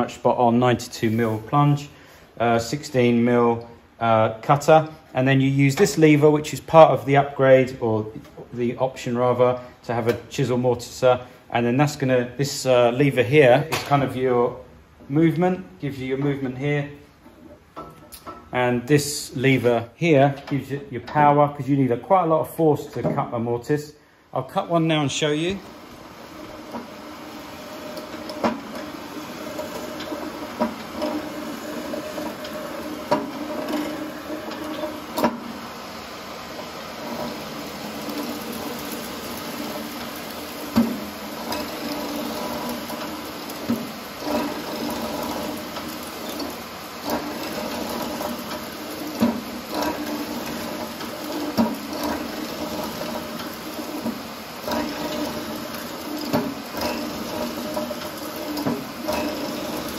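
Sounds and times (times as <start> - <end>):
mortiser motor humming: 25.4 - 59.9.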